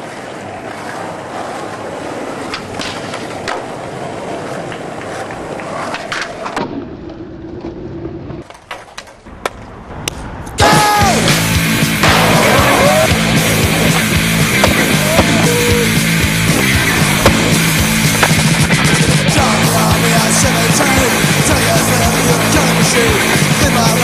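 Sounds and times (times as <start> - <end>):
skateboard clacks: 0.0 - 24.0
skateboard wheels rolling on pavement: 0.0 - 24.0
music: 10.6 - 24.0.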